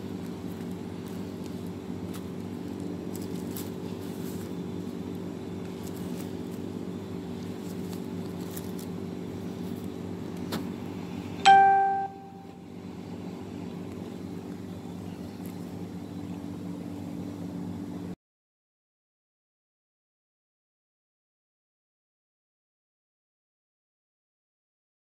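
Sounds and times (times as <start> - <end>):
low machine hum: 0.0 - 18.2.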